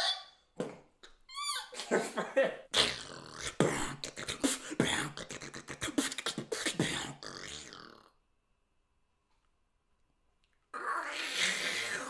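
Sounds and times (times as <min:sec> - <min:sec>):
beatboxing percussion: 0:02.7 - 0:08.0
short pitched vocal sounds: 0:02.7 - 0:08.2.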